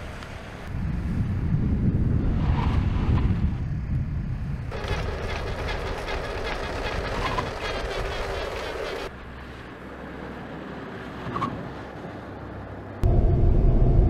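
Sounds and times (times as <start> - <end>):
car road and running noise: 0.0 - 14.0
fast even clatter: 4.7 - 9.1
low hum: 12.7 - 14.0.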